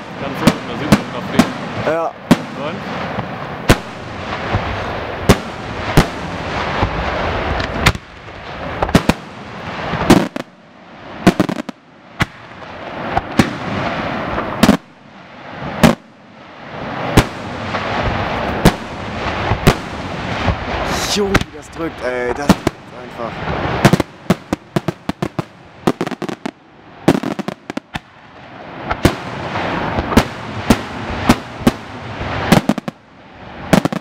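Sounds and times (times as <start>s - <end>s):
firework shells bursting: 0.0s - 10.6s, 16.9s - 28.2s.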